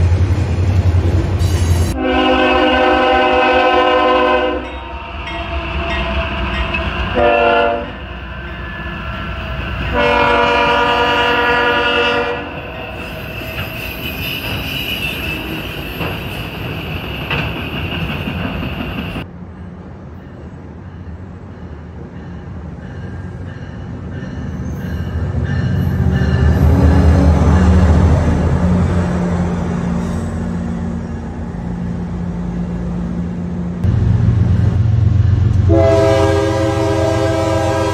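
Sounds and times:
locomotive air horn: 1.6s - 6.4s, 7.0s - 8.1s, 9.8s - 15.9s, 35.6s - 37.9s
high wheel squeal: 12.6s - 19.2s.

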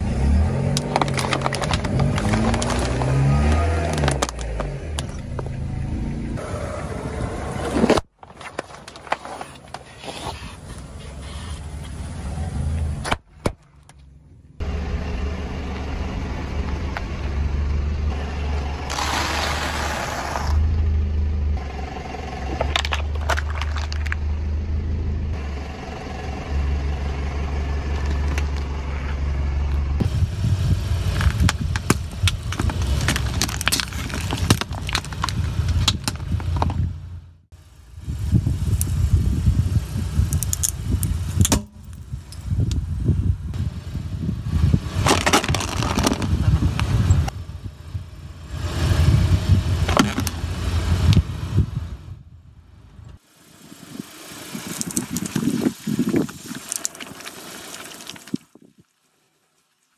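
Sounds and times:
engine and tyre rumble: 0.0s - 58.6s
plastic crackling and snapping: 0.7s - 4.7s, 31.2s - 36.7s, 45.1s - 46.3s.

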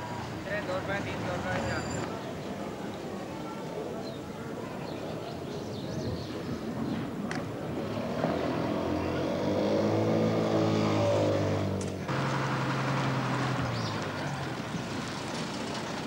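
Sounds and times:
bus engine running: 11.8s - 16.0s.

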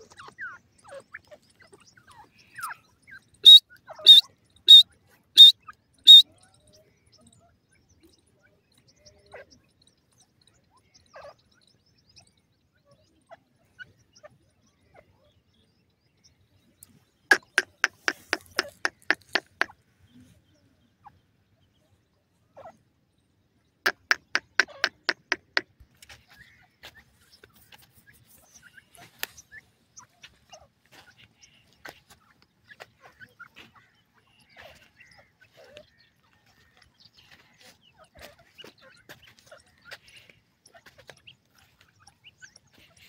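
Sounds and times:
bird calling repeated clipped notes: 3.4s - 6.3s, 17.3s - 19.8s, 23.9s - 26.3s.

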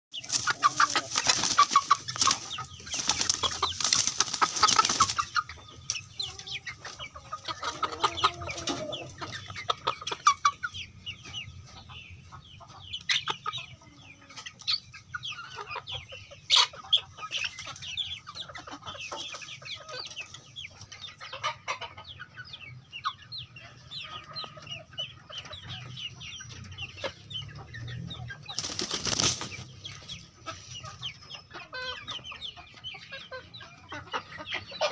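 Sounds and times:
chicks clucking and chirping: 0.1s - 34.9s
wings flapping: 0.3s - 5.2s, 28.6s - 29.6s.

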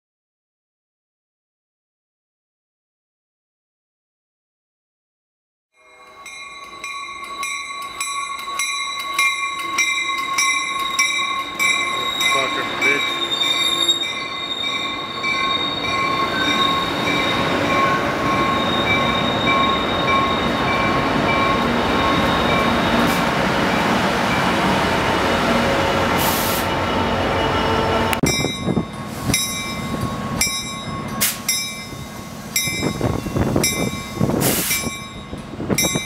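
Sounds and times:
train wheel squeal: 5.8s - 23.3s
diesel locomotive running: 6.1s - 36.0s.

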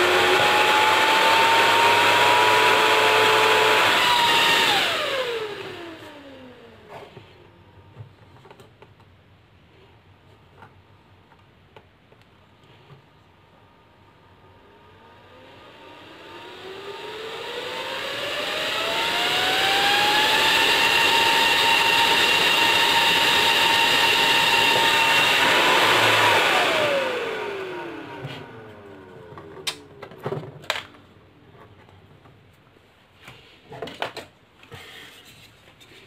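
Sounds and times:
blower whine: 0.0s - 7.6s, 14.0s - 30.4s.

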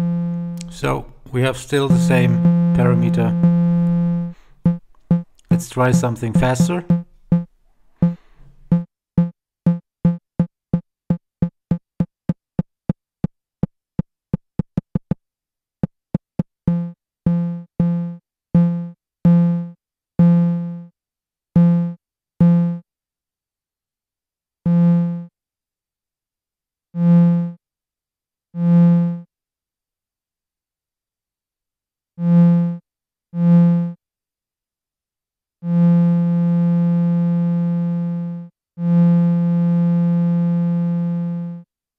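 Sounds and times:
low synthesizer notes: 0.0s - 8.8s.

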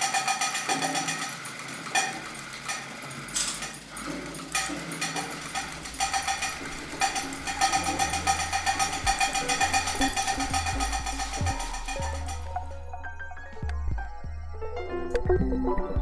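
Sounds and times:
rapid even ticking: 0.0s - 12.7s
sustained ringing tone: 5.5s - 16.0s
low bass tones: 6.0s - 16.0s.

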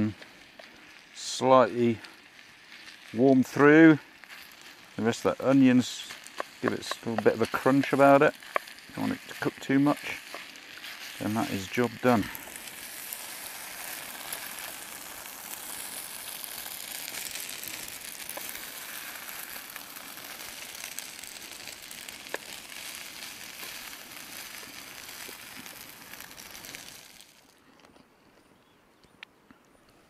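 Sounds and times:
food sizzling in a frying pan: 0.0s - 27.6s.

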